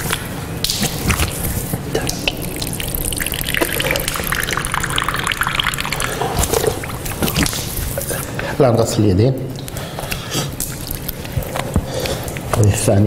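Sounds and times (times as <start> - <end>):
water splashing on face: 0.6 - 8.3
tap water running: 1.3 - 8.2.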